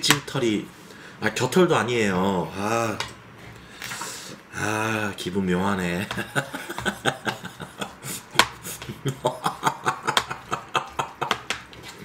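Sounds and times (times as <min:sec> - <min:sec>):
man laughing: 0:06.0 - 0:11.6.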